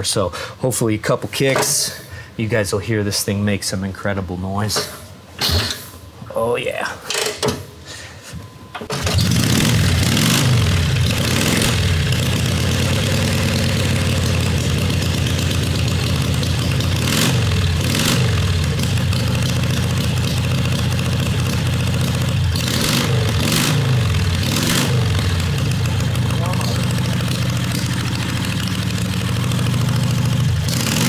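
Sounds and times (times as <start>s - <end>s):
motorcycle engine throttle blips: 8.7s - 31.0s
motorcycle engine kick-started: 8.8s - 23.4s.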